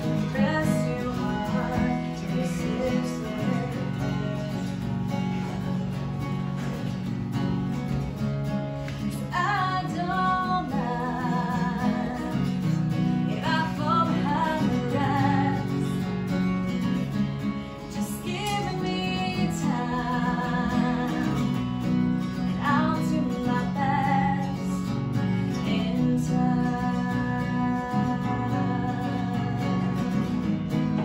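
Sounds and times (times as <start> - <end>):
woman singing with vibrato: 0.0 - 5.0, 9.1 - 16.0, 17.9 - 31.0
acoustic guitar: 0.0 - 31.0.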